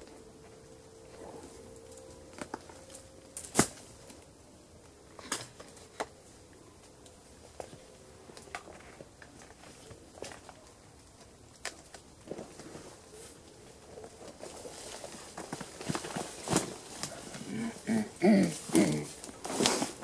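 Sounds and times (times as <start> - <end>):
twigs and branches snapping: 1.6 - 6.2, 8.4 - 12.7, 14.1 - 17.5
brush rustling: 12.2 - 20.0.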